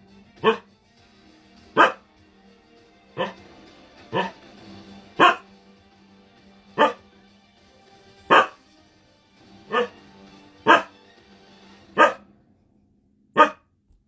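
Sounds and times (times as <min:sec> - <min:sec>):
dog barking: 0:00.4 - 0:00.7, 0:01.7 - 0:02.0, 0:03.2 - 0:03.4, 0:04.1 - 0:04.4, 0:05.1 - 0:05.5, 0:06.8 - 0:07.0, 0:08.3 - 0:08.6, 0:09.7 - 0:10.0, 0:10.6 - 0:11.0, 0:12.0 - 0:12.2, 0:13.4 - 0:13.6.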